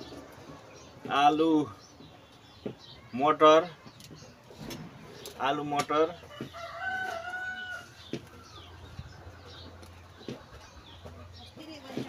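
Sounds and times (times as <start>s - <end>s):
rooster crowing: 6.3s - 8.7s.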